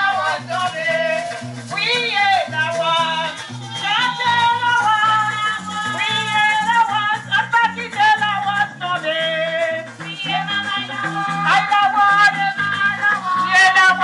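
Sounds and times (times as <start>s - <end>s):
live band playing: 0.0s - 14.0s
women singing: 0.0s - 14.0s.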